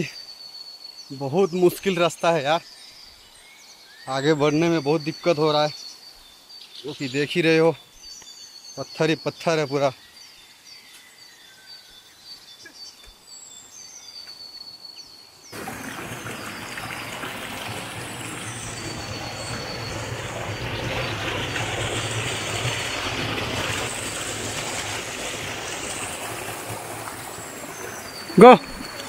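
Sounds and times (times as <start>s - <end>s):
faint bird chirps: 0.0s - 17.0s, 17.7s - 23.0s, 26.5s - 29.0s
stream rushing over rocks: 15.6s - 29.0s.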